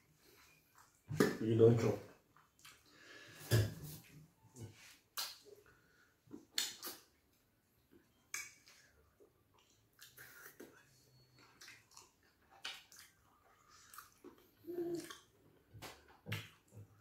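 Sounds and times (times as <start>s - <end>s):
wet smacks of hands eating: 0.4s - 1.4s, 2.3s - 3.0s, 4.7s - 17.0s
mouth eating sounds: 9.6s - 15.4s.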